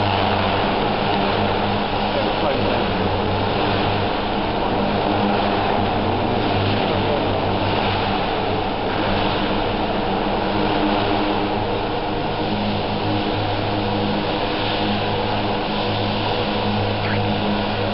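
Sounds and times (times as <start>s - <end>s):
helicopter motor hum: 0.0s - 17.9s.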